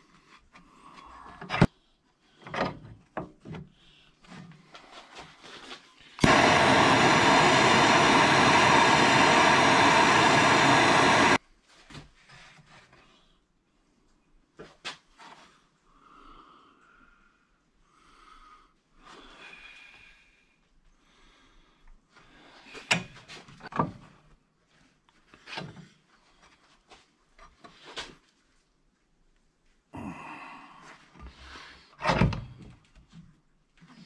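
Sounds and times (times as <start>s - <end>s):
scraping and rustling of gloves: 4.2s - 6.2s, 24.4s - 29.9s.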